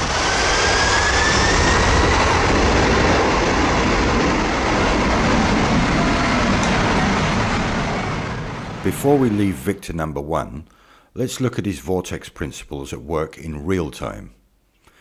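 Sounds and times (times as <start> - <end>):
jet engine whine: 0.0 - 9.9
jet engines roaring: 0.0 - 10.0.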